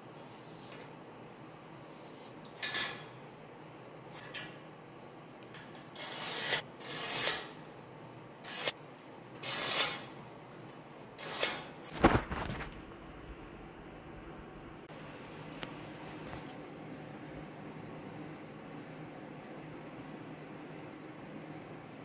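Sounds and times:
steel scribe scratching metal: 5.8 - 7.6, 8.4 - 8.8, 9.4 - 10.1, 11.2 - 11.8.

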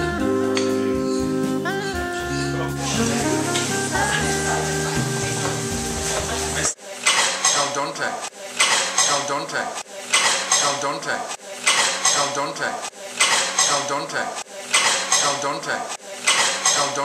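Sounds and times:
guitar music: 0.0 - 6.7
cutlery and dishes clattering: 7.0 - 7.8, 8.6 - 9.3, 10.1 - 10.8, 11.6 - 12.4, 13.2 - 13.9, 14.7 - 15.4, 16.2 - 17.0.

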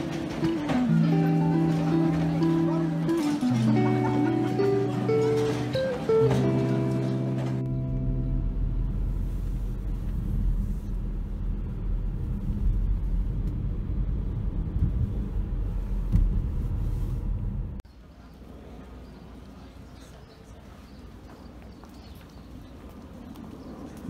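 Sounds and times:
steady low rumble: 7.4 - 17.8.

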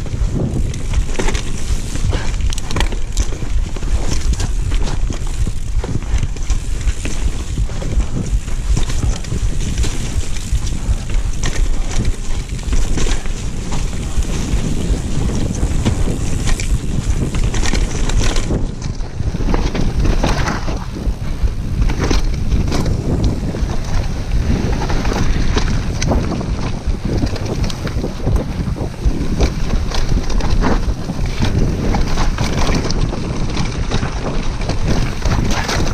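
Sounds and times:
bike knocking and rattling: 0.0 - 35.9
tyres rolling over dirt and rocks: 0.0 - 35.9
wind buffeting microphone: 0.0 - 35.9.

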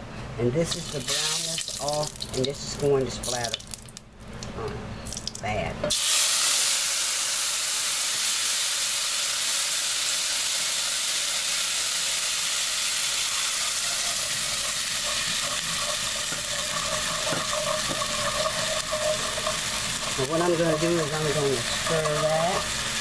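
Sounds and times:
water sizzling in hot pot: 0.7 - 2.6, 5.1 - 23.0
wire whisk stirring: 13.4 - 23.0.

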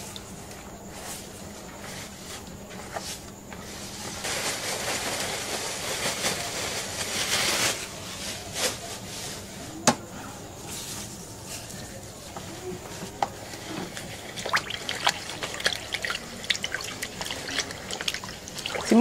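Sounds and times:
plastic bag rustling: 3.6 - 9.8, 10.6 - 19.0
hands working wet pulp: 13.4 - 19.0
wet sloshing: 13.6 - 19.0.

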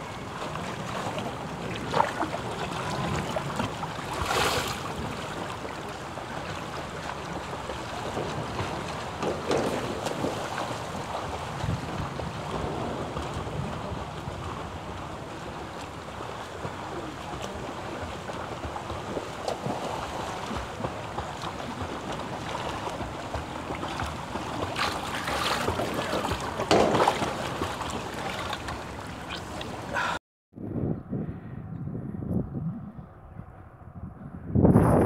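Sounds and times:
swimmer splashing: 0.0 - 30.2
wind on microphone: 7.2 - 18.0, 28.8 - 35.0.

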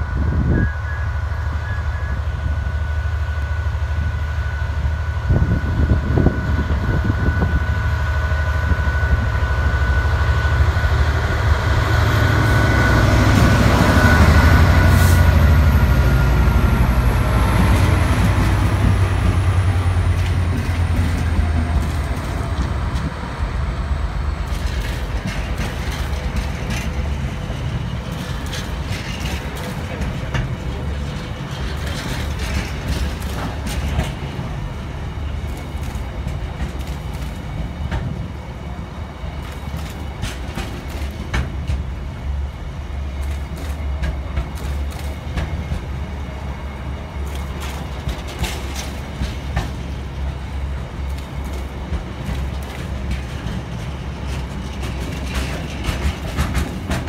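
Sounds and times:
diesel locomotive engine rumble: 0.0 - 57.0
wagons clattering over rails: 12.5 - 23.4, 24.3 - 38.3, 39.4 - 42.0, 43.0 - 57.0.

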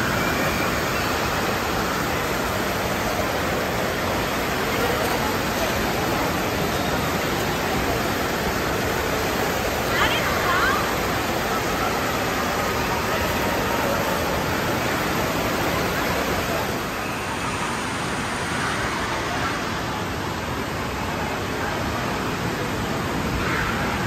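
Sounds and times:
fountain jets rushing water: 0.0 - 24.0
indoor water park din: 0.0 - 24.0.

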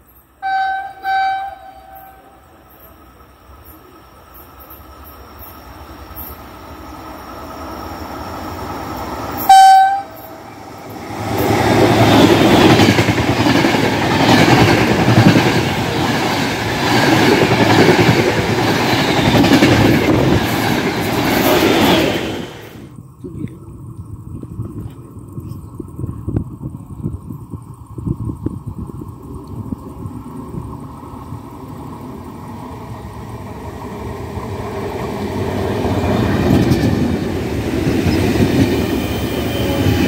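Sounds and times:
electric locomotives passing: 0.0 - 40.0
wheels rumbling on rails: 0.0 - 40.0
train horn blast: 0.4 - 2.4, 9.4 - 10.6.

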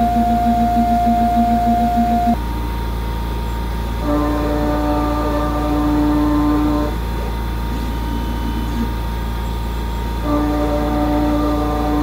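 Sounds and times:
constant low hum: 0.0 - 12.0
milling machine whine: 0.0 - 12.0.

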